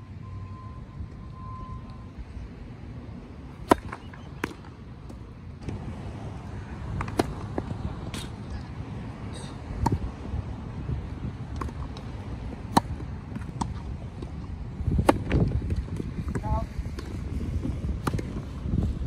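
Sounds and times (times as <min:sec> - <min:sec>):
tennis racket striking ball: 0:03.6 - 0:04.6, 0:06.9 - 0:08.4, 0:11.5 - 0:15.5
tennis ball bouncing: 0:03.6 - 0:08.6, 0:09.7 - 0:10.4, 0:11.4 - 0:17.1.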